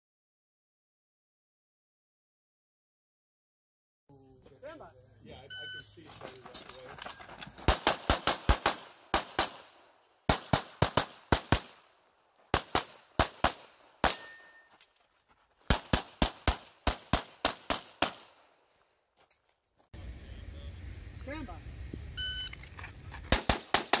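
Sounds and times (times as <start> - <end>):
pistol gunshots: 7.6 - 11.9, 12.5 - 14.5, 15.7 - 18.5, 23.3 - 24.0.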